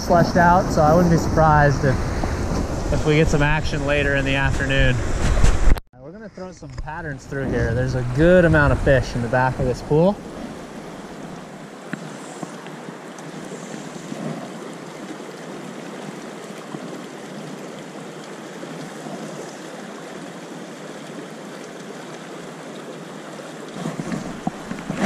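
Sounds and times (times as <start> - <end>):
river rushing over boulders: 7.3 - 25.0.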